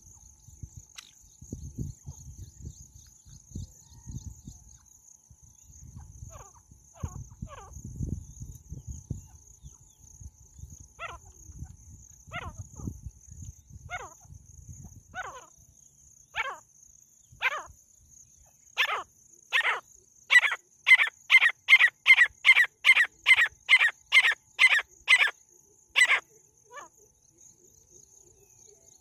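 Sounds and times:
francolin calling: 0:05.5 - 0:29.0.

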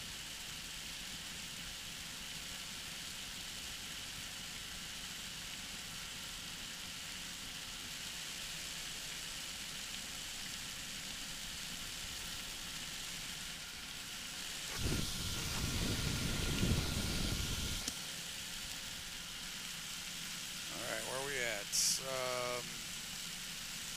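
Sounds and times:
engine and airflow hiss: 0:00.0 - 0:23.9
faint steady tones: 0:13.2 - 0:23.9
wind buffeting microphone: 0:14.7 - 0:17.9.

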